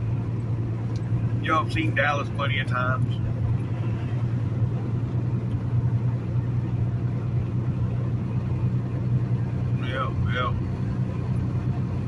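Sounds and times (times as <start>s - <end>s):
diesel engine droning: 0.0s - 12.0s
tyre and road noise: 0.0s - 12.0s.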